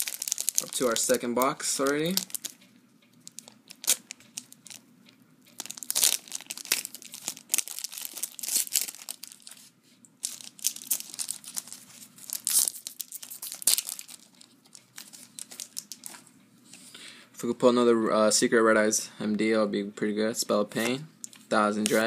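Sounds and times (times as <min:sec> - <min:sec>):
foil wrapper tearing and crinkling: 0:00.0 - 0:02.6, 0:03.3 - 0:04.8, 0:05.6 - 0:16.2.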